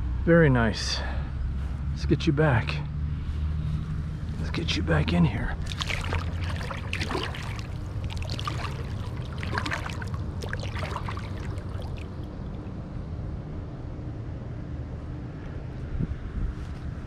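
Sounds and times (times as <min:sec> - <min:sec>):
low wind rumble on microphone: 0:00.0 - 0:17.0
water splashing and sloshing: 0:05.3 - 0:12.8.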